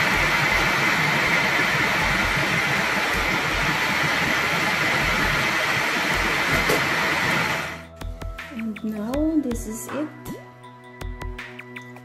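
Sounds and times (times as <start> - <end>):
food processor motor running: 0.0 - 7.8.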